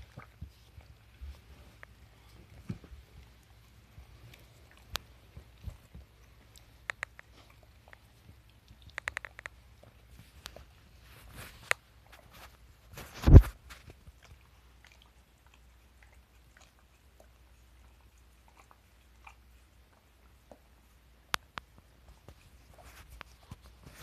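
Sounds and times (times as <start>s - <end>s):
sharp clicks: 6.8s - 7.3s, 8.9s - 9.6s.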